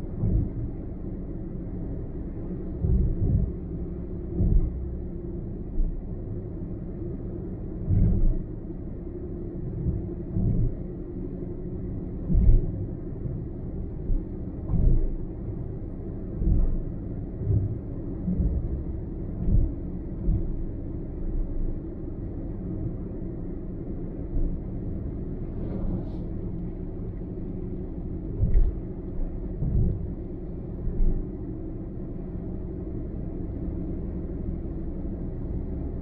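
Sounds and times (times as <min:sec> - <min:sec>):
road and engine rumble: 0:00.0 - 0:36.0
low thumps: 0:14.0 - 0:15.2, 0:28.3 - 0:30.2.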